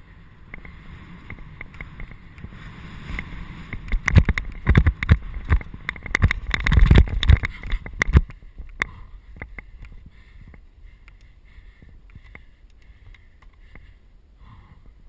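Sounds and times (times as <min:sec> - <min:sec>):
bike rattling over rough track: 0:00.0 - 0:10.6.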